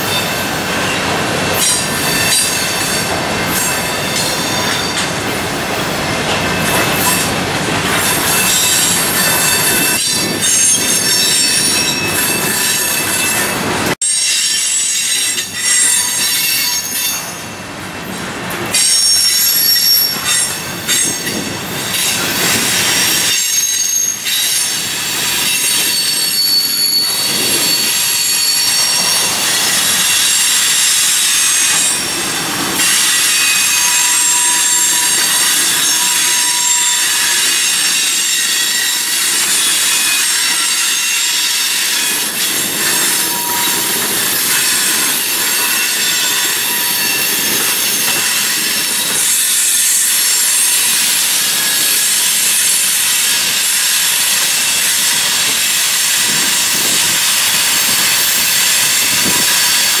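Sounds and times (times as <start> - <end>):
train wheels rumbling on rail: 0.0 - 60.0
high-pitched flange squeal: 22.7 - 60.0.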